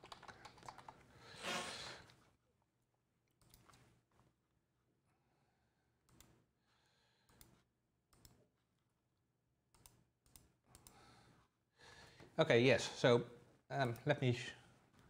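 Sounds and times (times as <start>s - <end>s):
computer mouse clicks: 0.0s - 1.0s, 6.0s - 6.4s, 7.3s - 8.4s, 9.7s - 11.0s.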